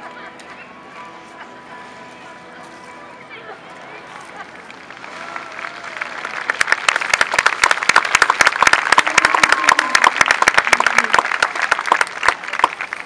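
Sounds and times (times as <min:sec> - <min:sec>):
crowd applauding: 0:04.7 - 0:13.0.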